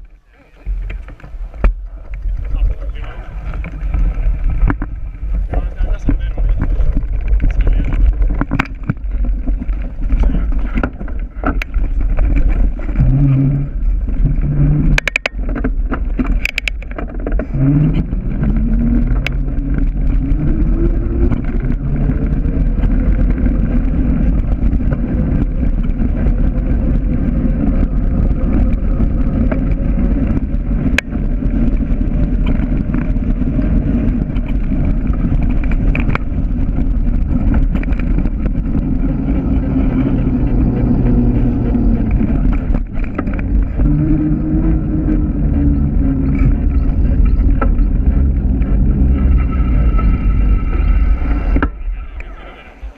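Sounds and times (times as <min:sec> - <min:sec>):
rising whine: 0:00.0 - 0:52.9
tyres rumbling over gravel: 0:00.0 - 0:52.9
wind buffeting microphone: 0:00.0 - 0:52.9
sharp clatters: 0:00.7 - 0:44.4.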